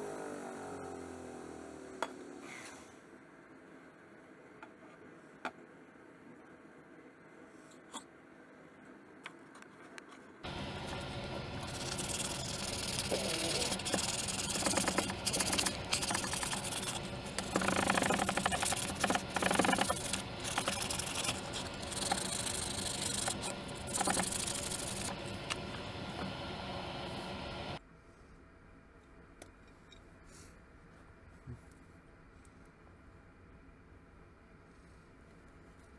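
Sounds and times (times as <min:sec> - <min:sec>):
steady low hum: 0:10.4 - 0:35.9
abrasive scraping on wood: 0:11.6 - 0:25.2.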